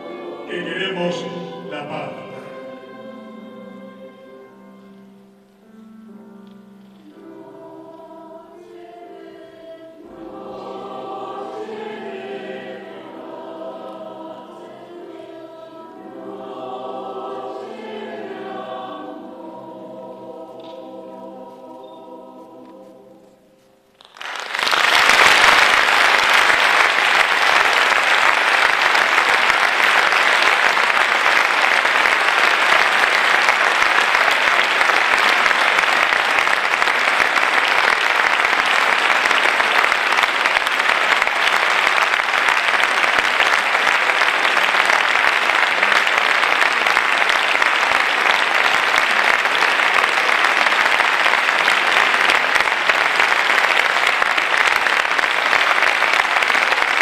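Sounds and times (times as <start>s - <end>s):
audience applause: 24.0s - 57.0s.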